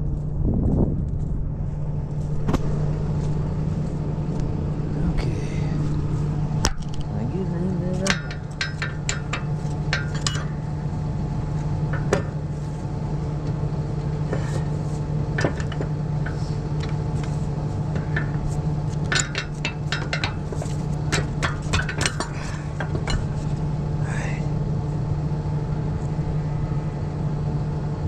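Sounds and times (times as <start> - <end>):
tractor engine idling: 1.2 - 28.0
metal tools clinking on steel: 7.9 - 10.6.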